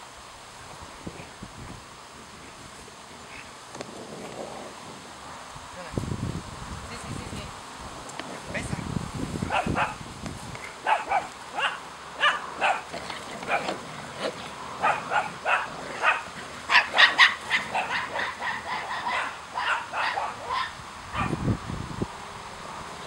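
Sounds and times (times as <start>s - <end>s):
puppies yipping and barking: 10.6s - 21.3s.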